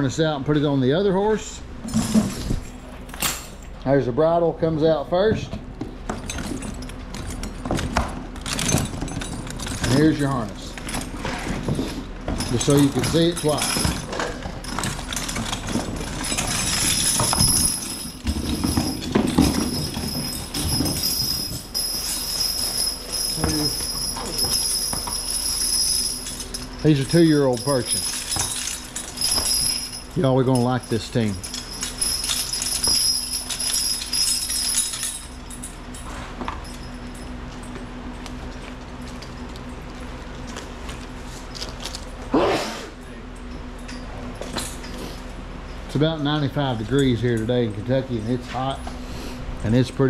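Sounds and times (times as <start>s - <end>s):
steady low hum: 0.0s - 50.0s
chains and rings jingling: 8.4s - 40.6s
horse hooves knocking: 11.0s - 26.8s
faint metal clinks: 12.4s - 40.6s.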